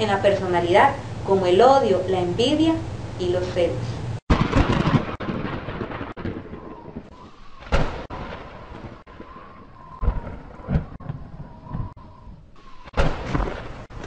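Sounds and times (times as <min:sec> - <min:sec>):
sharp thunderclap: 0:04.3 - 0:12.0, 0:12.8 - 0:14.0
rumbling thunder: 0:04.3 - 0:14.0.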